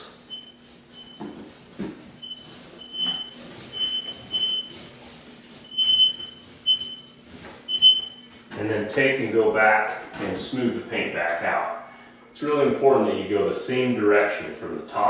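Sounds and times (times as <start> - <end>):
paint roller squeaking: 0.0 - 8.4.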